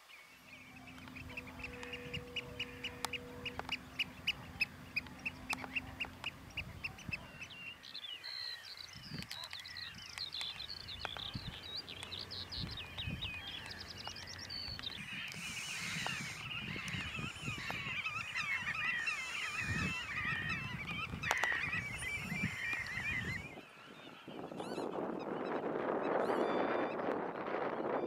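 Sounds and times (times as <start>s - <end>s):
higher bird calls and trills: 0.0s - 28.0s
geese honking: 0.5s - 7.5s, 13.5s - 23.5s
wind on microphone: 0.5s - 7.7s, 8.9s - 28.0s.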